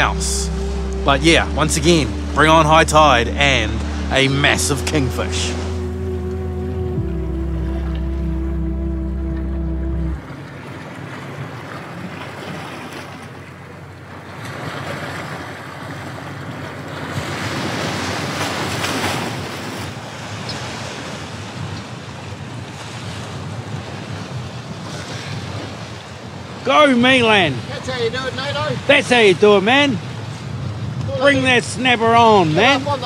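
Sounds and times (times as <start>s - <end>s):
wind buffeting microphone: 16.1s - 33.0s.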